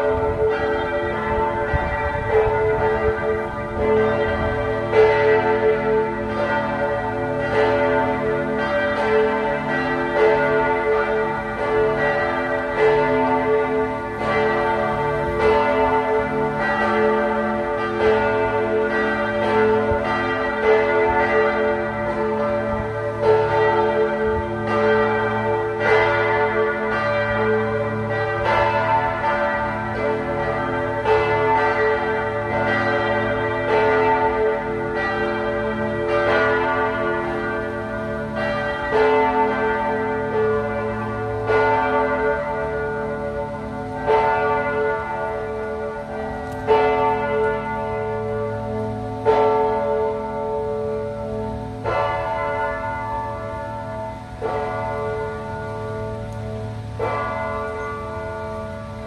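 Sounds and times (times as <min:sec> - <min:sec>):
church bells pealing: 0:00.0 - 0:59.0.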